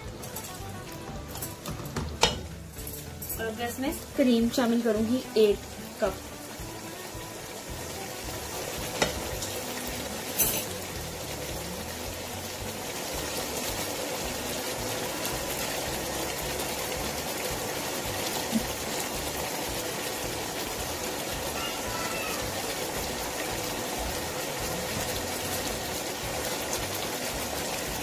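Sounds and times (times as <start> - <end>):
curry sizzling in a pot: 0.0 - 28.0
utensil tapping pot: 1.3 - 3.4, 8.6 - 10.8.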